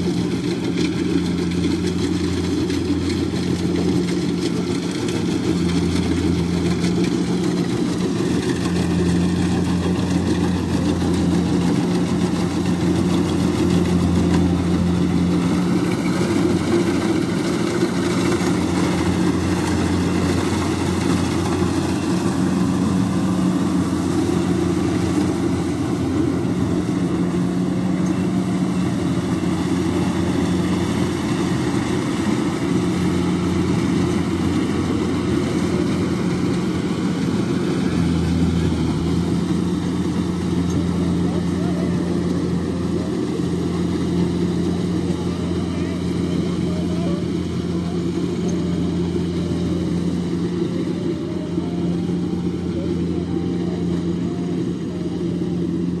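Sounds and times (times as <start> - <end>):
combine harvester diesel engine: 0.0 - 56.0.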